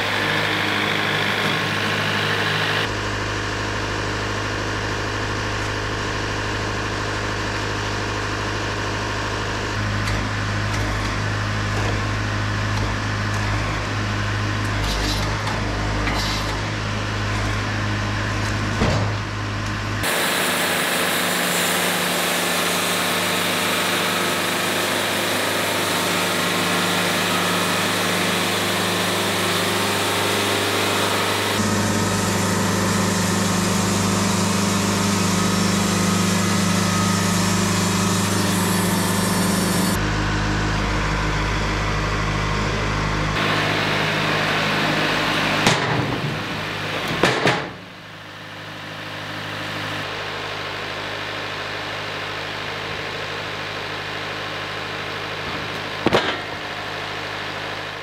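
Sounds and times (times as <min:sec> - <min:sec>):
band sawmill sawing log: 0:00.0 - 0:03.1, 0:19.9 - 0:47.8.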